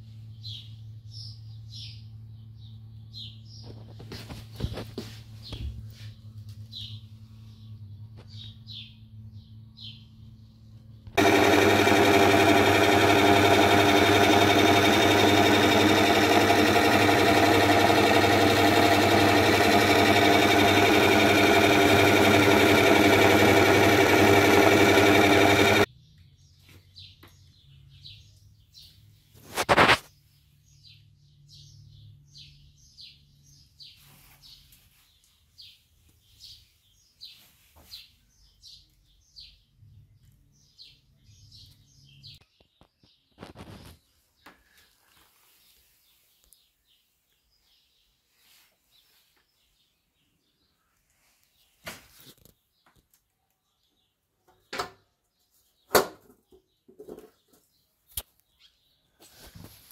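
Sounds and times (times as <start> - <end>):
lathe motor humming: 11.2 - 25.9.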